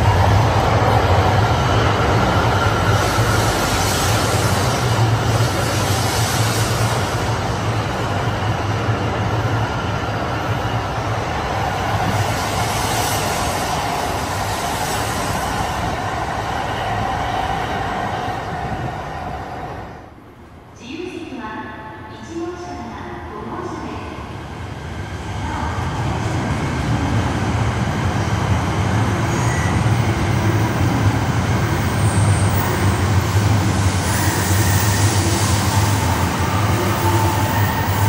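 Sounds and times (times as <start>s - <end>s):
train passing with rumble: 0.0s - 20.7s, 23.6s - 38.0s.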